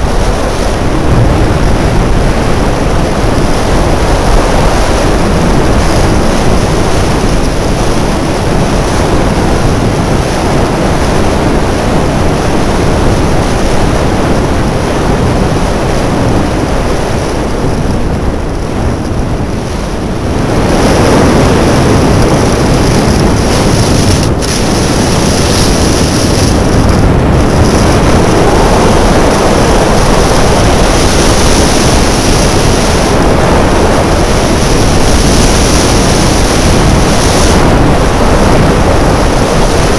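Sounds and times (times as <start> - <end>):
wind rushing over microphone: 0.0 - 39.9
skis hissing on snow: 23.5 - 26.9, 34.7 - 37.6.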